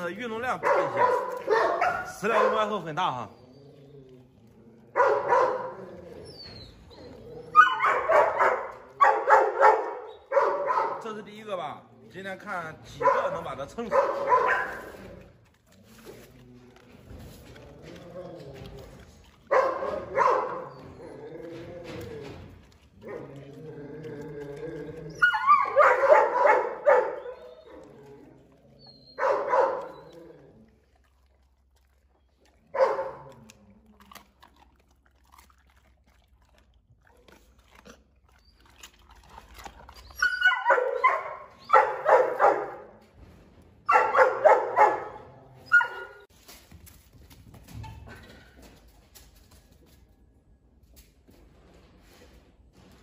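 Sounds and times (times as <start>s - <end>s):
dog barking: 0.5s - 2.7s, 4.9s - 5.9s, 7.6s - 11.1s, 13.0s - 15.0s, 19.5s - 21.0s, 25.2s - 27.5s, 29.2s - 30.1s, 32.7s - 33.4s, 40.2s - 43.0s, 43.8s - 46.2s
dog whining: 3.2s - 10.8s, 17.4s - 31.0s, 38.2s - 42.7s, 43.9s - 46.3s.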